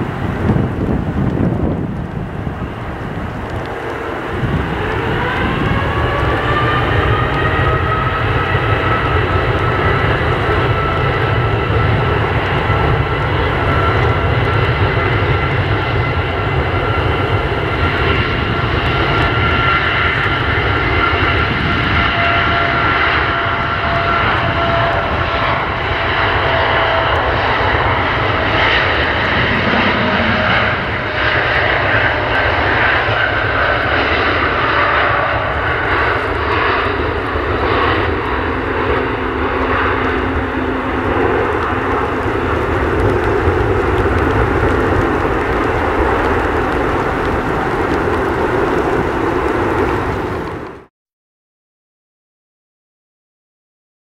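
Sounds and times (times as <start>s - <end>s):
jet engines at takeoff: 0.0s - 50.9s.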